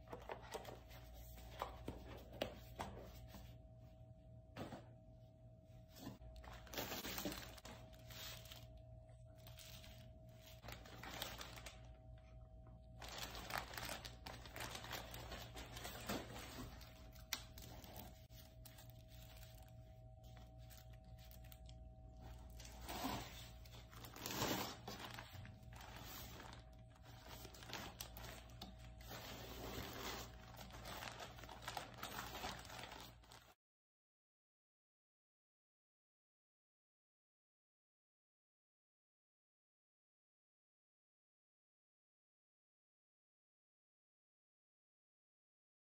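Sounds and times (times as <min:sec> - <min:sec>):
faint steady hum: 0:00.0 - 0:33.4
plastic packaging crinkling: 0:06.4 - 0:12.1, 0:12.9 - 0:33.6.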